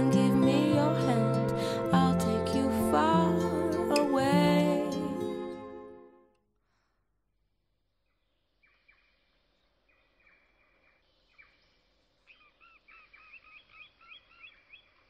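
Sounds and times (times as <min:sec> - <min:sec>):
faint bird chirps: 0:08.0 - 0:15.0.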